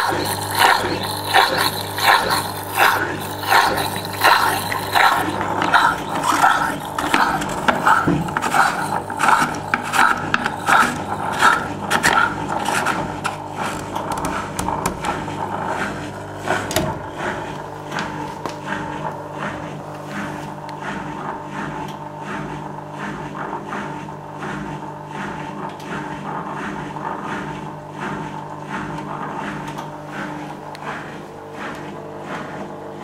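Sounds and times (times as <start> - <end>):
regular rasp: 0.0 - 16.7
drain pump humming: 0.0 - 33.0.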